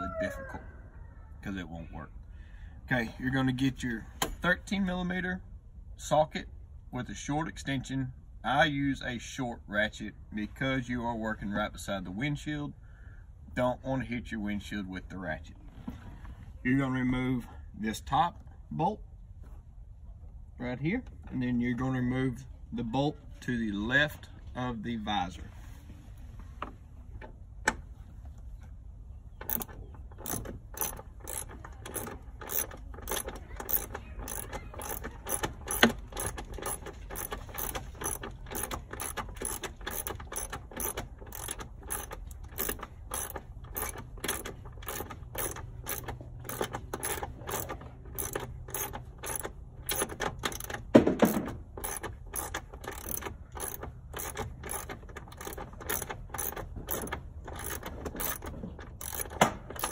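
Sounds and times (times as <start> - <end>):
ratchet clicking: 29.4 - 59.9.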